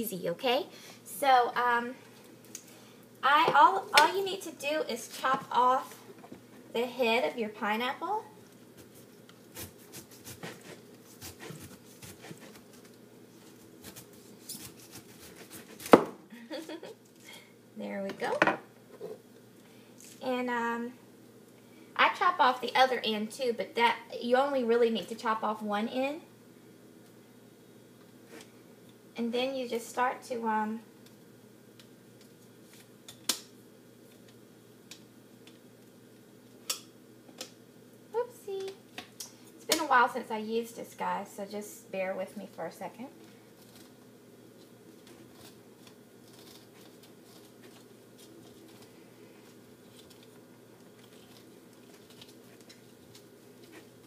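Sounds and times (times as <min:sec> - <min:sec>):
knife sawing through pineapple: 0:09.6 - 0:12.6, 0:14.6 - 0:15.9.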